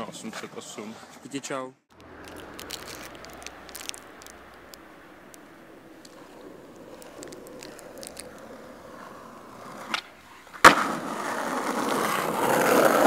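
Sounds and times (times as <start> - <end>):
skateboard wheels rolling on concrete: 1.9 - 13.0
skateboard clacking: 4.0 - 13.0.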